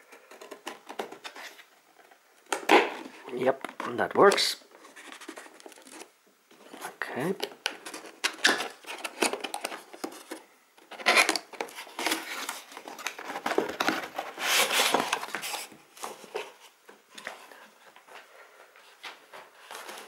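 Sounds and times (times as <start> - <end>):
cardboard flaps scraping and rustling: 7.8 - 18.0, 18.9 - 20.0.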